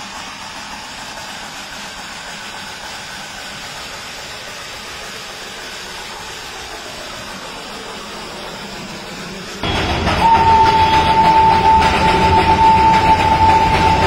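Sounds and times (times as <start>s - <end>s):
steam hissing: 0.0s - 14.0s
steam train running: 0.0s - 14.0s.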